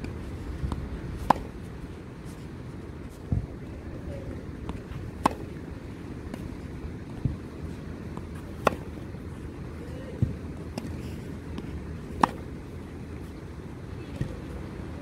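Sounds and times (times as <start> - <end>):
low background noise: 0.0 - 15.0
tennis ball struck by racket: 0.6 - 1.7, 4.6 - 5.7, 8.1 - 9.0, 11.5 - 12.6.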